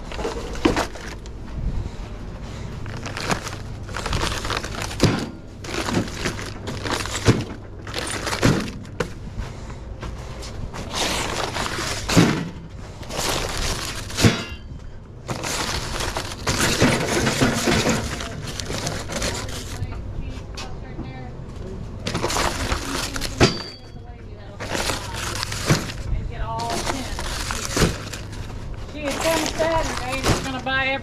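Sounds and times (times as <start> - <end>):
plastic wrap crinkling: 0.0 - 1.4, 2.8 - 9.2, 10.8 - 12.4, 13.0 - 14.5, 15.2 - 19.9, 22.0 - 31.0
cases thudding down: 3.1 - 9.2.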